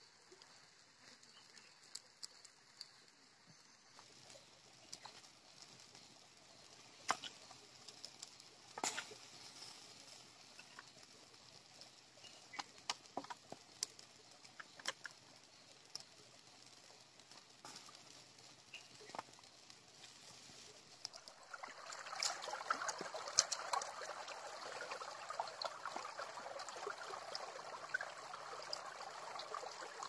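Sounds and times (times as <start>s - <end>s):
wood fire crackling: 0.0s - 30.0s
sharp pops of fire: 4.0s - 11.2s, 11.8s - 24.2s.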